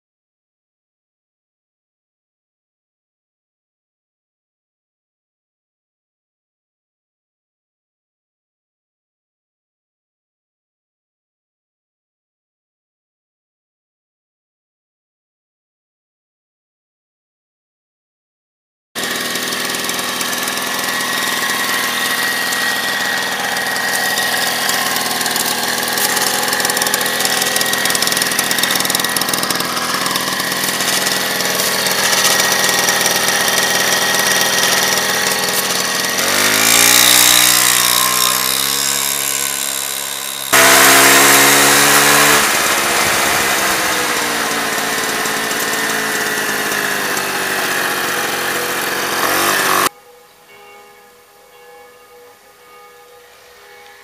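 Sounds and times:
moped engine running: 19.0s - 49.9s.

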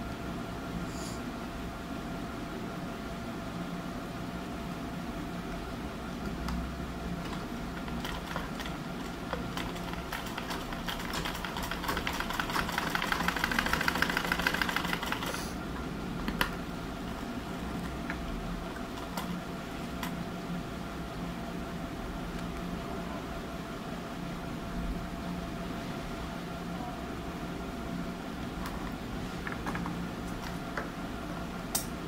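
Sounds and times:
steady background hum: 0.0s - 32.0s
sewing machine stitching: 7.2s - 15.4s.

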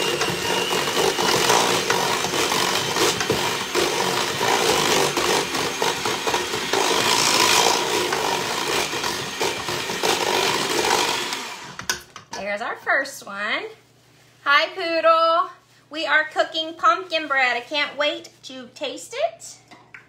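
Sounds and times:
electric hand mixer running: 0.0s - 12.0s.

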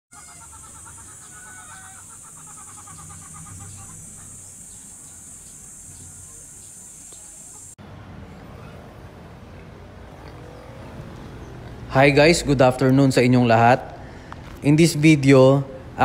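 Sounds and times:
wavering animal call: 0.1s - 7.6s
chickens clucking: 0.1s - 7.8s
small bird chirps: 0.2s - 7.8s
steady high-pitched drone: 0.4s - 7.8s.

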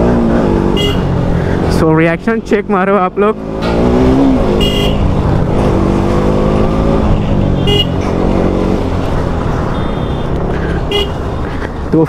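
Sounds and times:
wind and road rumble: 0.0s - 12.0s
short horn beeps: 4.6s - 5.0s.

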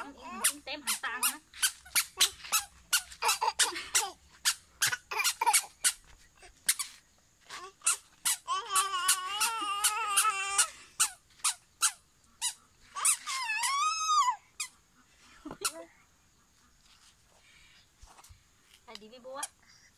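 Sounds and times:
squeaker shoes chirping: 0.0s - 14.8s.

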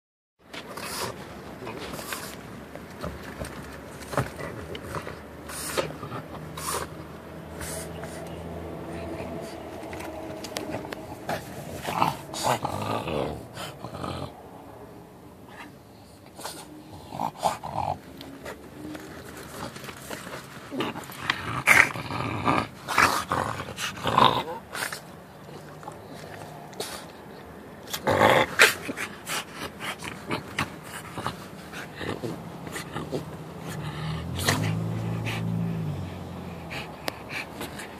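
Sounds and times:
dog vocalising: 28.4s - 35.7s.

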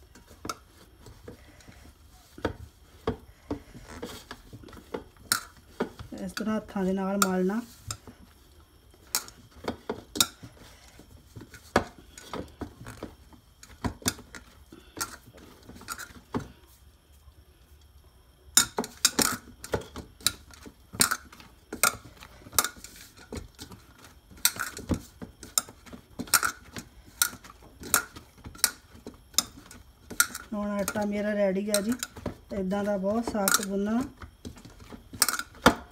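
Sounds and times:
dough kneaded in metal bowl: 0.0s - 35.9s.

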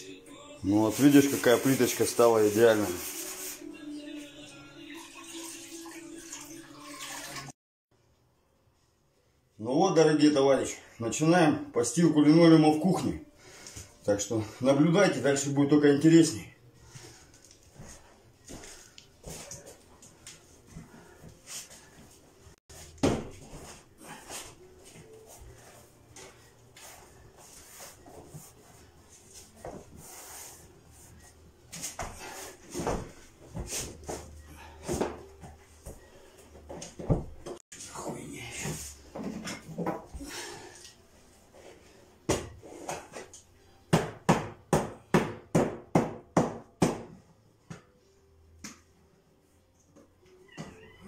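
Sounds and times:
linoleum rustling and scraping: 16.9s - 40.2s.

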